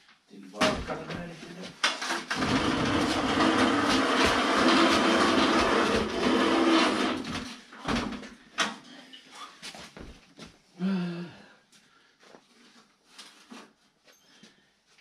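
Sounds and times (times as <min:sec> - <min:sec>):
metal stand scraping on concrete: 0:02.4 - 0:07.5.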